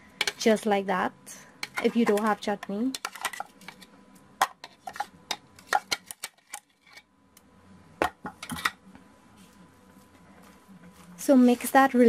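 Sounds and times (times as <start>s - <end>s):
spatula tapping and scraping bowl: 1.6s - 7.0s.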